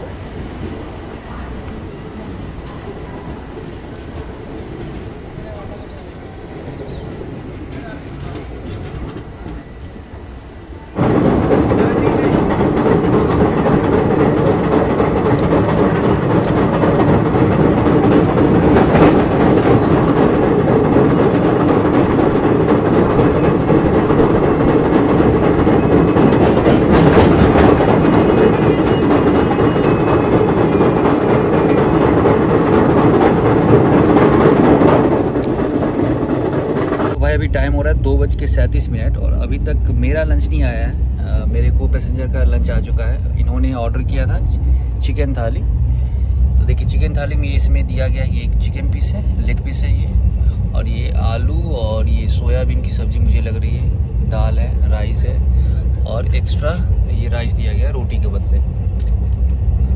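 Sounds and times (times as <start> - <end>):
train rumbling over bridge: 0.0 - 59.9.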